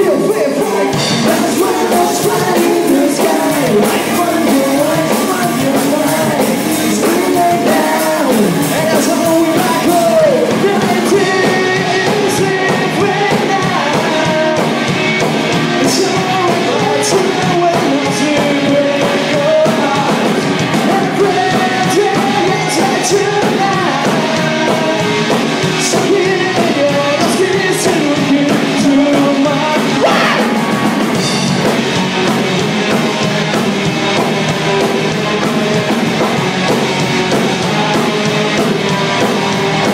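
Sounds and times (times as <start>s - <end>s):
man singing into microphone: 0.0s - 14.8s, 15.7s - 31.4s
rock band playing loudly: 0.0s - 39.9s.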